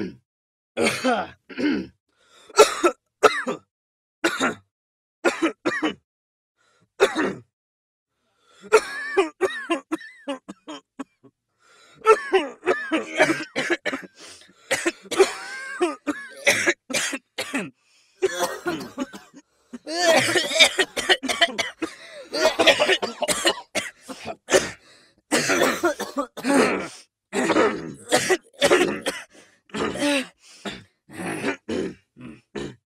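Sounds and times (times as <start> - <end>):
person coughing: 0.8 - 1.9, 2.6 - 3.7, 4.3 - 4.6, 5.3 - 6.0, 7.0 - 7.5, 12.0 - 14.1, 14.7 - 32.8.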